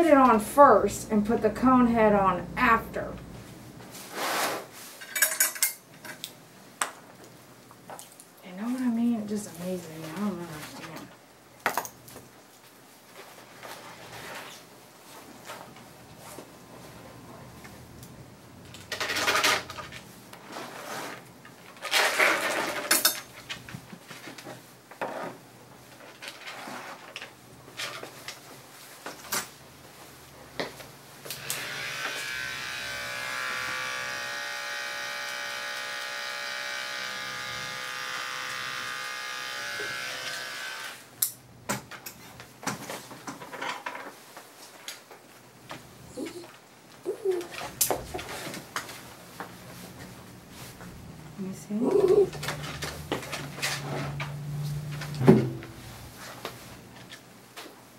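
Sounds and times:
dog clipper humming: 31.3 - 41.1.

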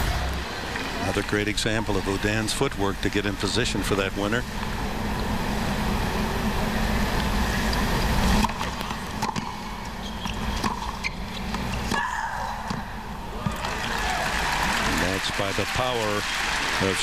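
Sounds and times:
static hum: 0.0 - 12.0
tennis ball strikes: 8.4 - 9.6
stadium crowd cheering and applauding: 13.3 - 17.0.

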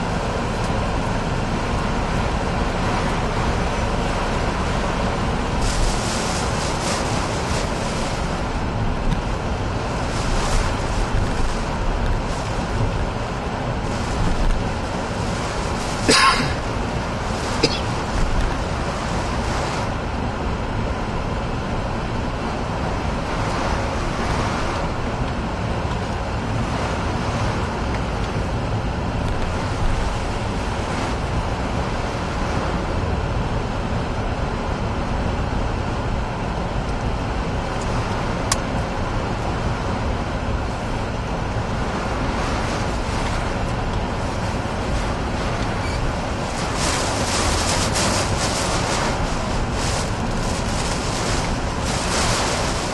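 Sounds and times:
tyre spray on wet road: 0.0 - 20.9, 37.1 - 52.9
rain and wind on car body: 0.0 - 52.9.

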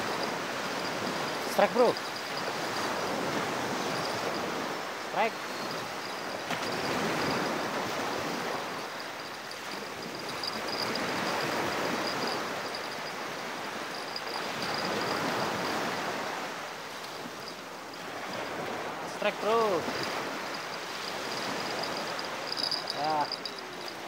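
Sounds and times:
small waves washing onto beach: 0.0 - 24.0.

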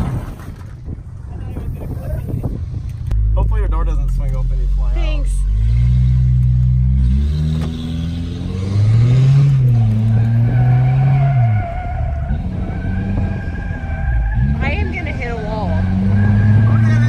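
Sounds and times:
pickup truck engine revving: 3.2 - 17.0
tire squeal: 9.5 - 17.0.

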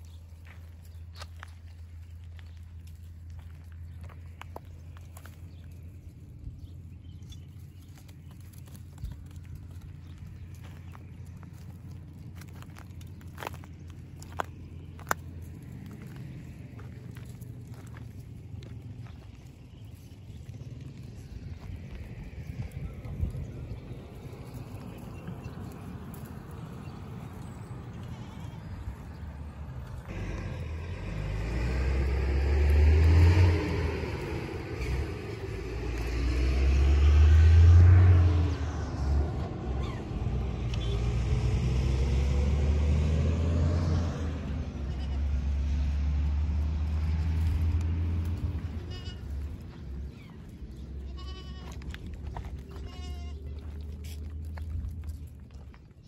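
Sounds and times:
goats moving over stony ground: 0.0 - 56.0
goats bleating: 27.9 - 28.8, 44.8 - 45.3, 48.5 - 49.6, 51.0 - 54.0
loud low rumble: 29.3 - 55.6.

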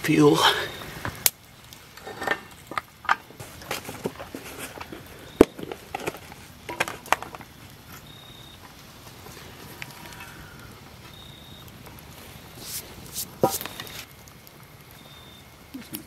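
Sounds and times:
camp gear clicking and rustling: 1.9 - 8.1.

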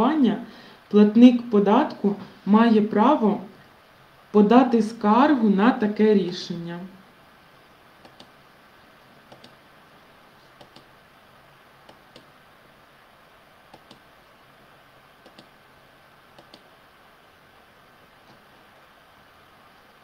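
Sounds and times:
faint steady hiss: 0.0 - 20.0
computer mouse clicking: 8.0 - 8.3, 9.3 - 9.6, 10.6 - 10.9, 11.8 - 12.3, 13.7 - 14.1, 15.2 - 15.5, 16.4 - 16.7.

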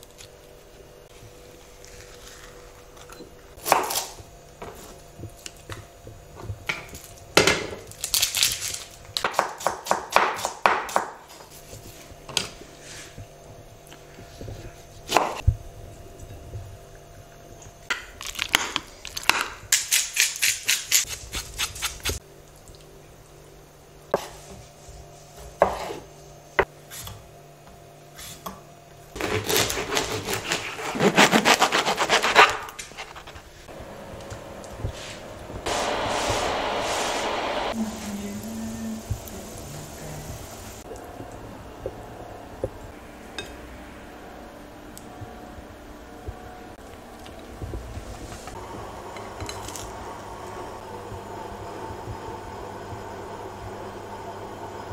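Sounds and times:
faint steady hum: 32.7 - 54.9.

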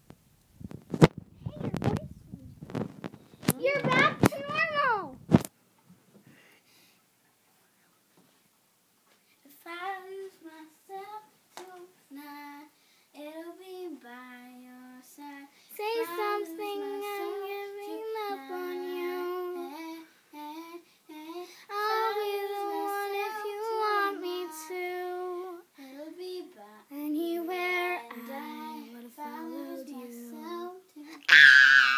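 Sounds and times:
child singing: 9.5 - 31.3.

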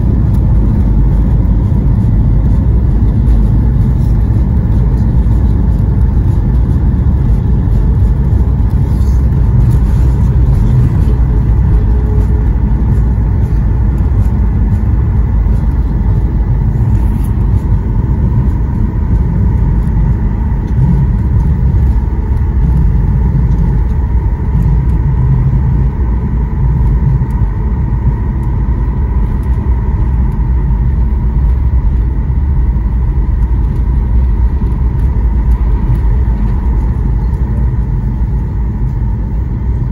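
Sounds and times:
airplane wheels rumbling: 0.0 - 39.9
jet engine whine: 0.0 - 39.9.

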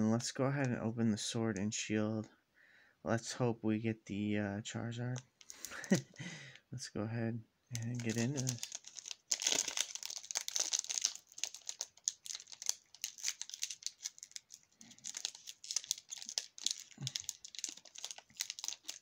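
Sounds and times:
foil wrapper tearing and crinkling: 7.8 - 19.0.

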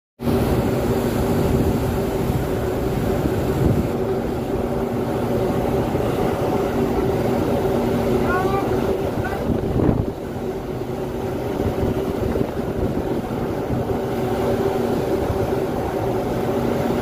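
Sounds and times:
ship machinery rumble: 0.2 - 17.0
wind on microphone: 0.2 - 17.0.

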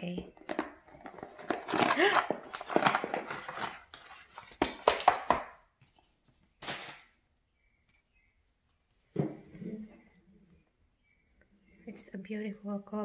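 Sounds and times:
packaging rustle: 0.4 - 5.4.

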